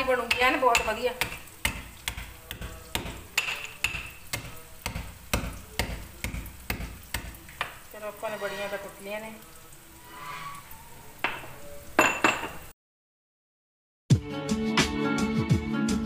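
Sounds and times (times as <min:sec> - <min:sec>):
pestle pounding in metal mortar: 0:00.2 - 0:07.7.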